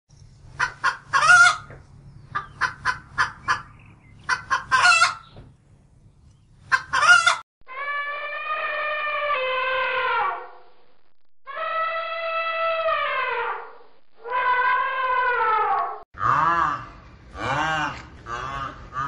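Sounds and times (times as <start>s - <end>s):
chickens clucking and squawking: 0.5s - 5.4s, 6.6s - 7.4s
elephant trumpeting: 7.7s - 10.5s, 11.5s - 19.0s.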